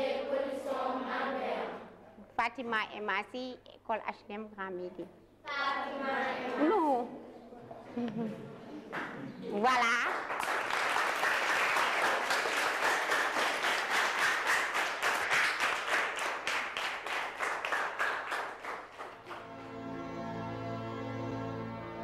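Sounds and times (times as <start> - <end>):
children clapping in rhythm: 10.0 - 19.7
slow instrumental music: 19.2 - 22.0.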